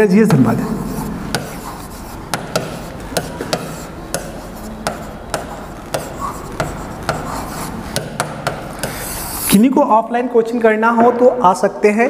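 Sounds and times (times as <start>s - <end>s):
marker tapping on board: 0.3s - 9.5s
marker scraping on board: 0.5s - 9.6s.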